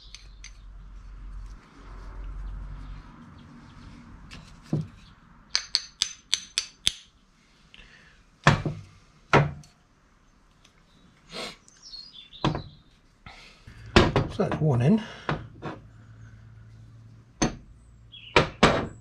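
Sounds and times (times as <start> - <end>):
small hammer tapping metal: 5.5 - 7.1.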